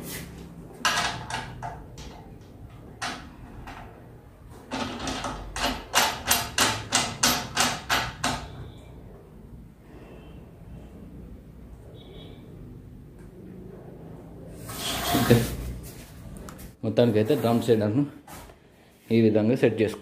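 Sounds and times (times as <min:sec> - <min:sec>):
clicks and rattles of wheel hub: 0:00.8 - 0:04.0, 0:04.7 - 0:08.6.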